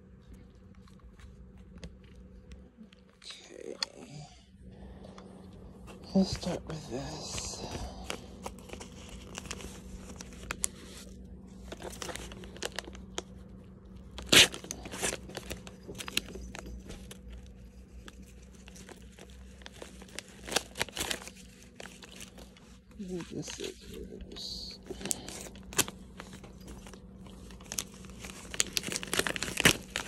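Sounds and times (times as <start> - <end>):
paper crinkling: 5.8 - 30.0
paper mailer tearing: 14.1 - 16.7, 18.6 - 22.4, 27.6 - 30.0.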